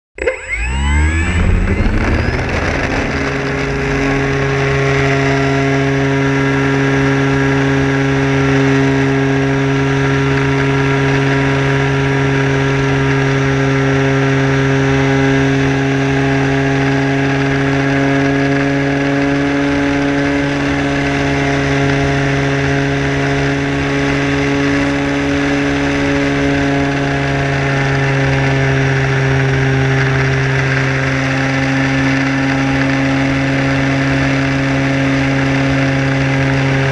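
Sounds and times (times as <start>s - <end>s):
model airplane motor and propeller: 0.2s - 36.9s.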